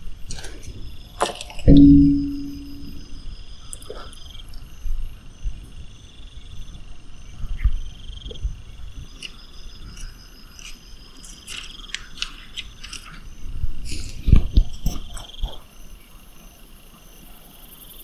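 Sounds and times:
high-pitched pulsed trills: 1.7s - 3.5s.

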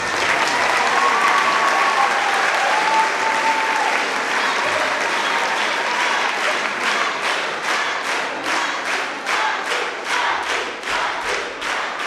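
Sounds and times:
audience applauding: 0.0s - 12.0s.

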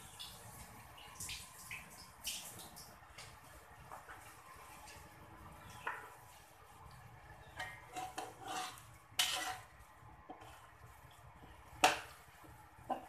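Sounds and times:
spatula scraping metal wok: 7.4s - 10.7s.

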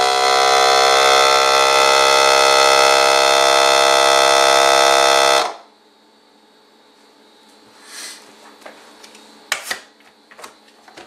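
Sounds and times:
vacuum sealer pump humming: 0.0s - 5.9s.

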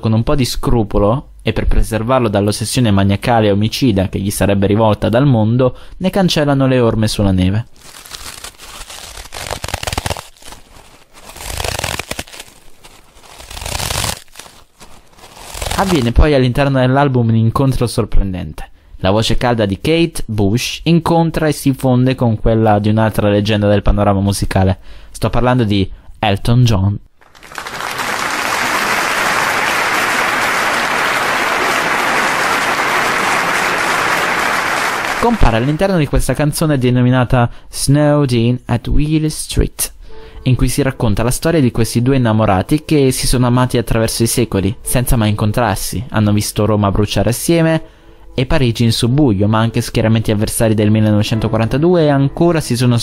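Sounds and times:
snow crunching: 7.8s - 16.1s
fine crackling: 7.8s - 16.2s, 27.2s - 35.9s
crowd applauding: 27.2s - 35.8s.

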